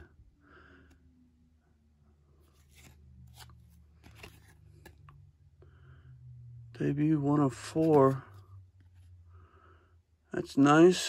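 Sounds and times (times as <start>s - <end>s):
trading cards being shuffled: 2.4s - 5.2s, 7.6s - 8.4s.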